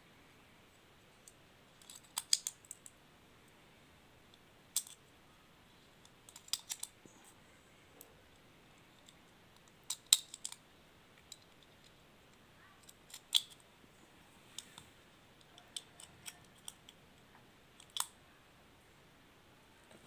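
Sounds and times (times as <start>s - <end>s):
cartridges clicking into magazine: 1.8s - 2.9s, 4.8s - 5.0s, 17.8s - 18.1s.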